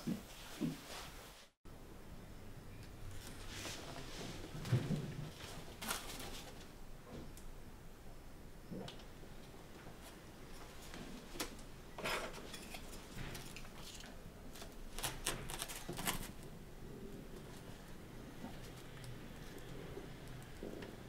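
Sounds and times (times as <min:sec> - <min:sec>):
paper fan rustling and scraping: 0:03.1 - 0:06.8, 0:10.0 - 0:16.6.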